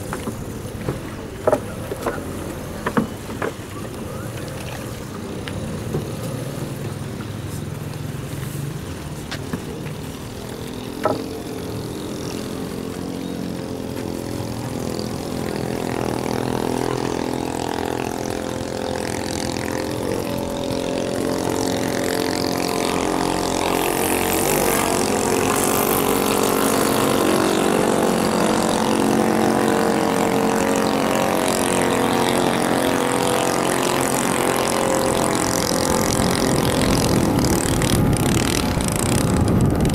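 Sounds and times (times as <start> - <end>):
small boat engine running hard: 0.0 - 39.9.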